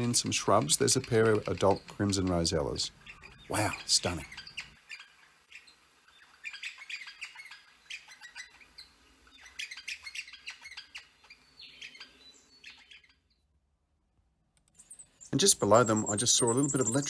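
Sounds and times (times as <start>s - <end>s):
parrots chirping and squawking: 0.0s - 13.5s, 14.8s - 17.0s.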